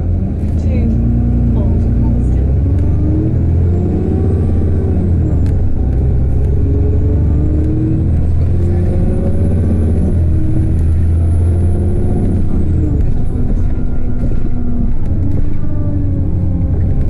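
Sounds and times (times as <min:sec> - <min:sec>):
bus diesel engine pulling hard: 0:00.0 - 0:17.0.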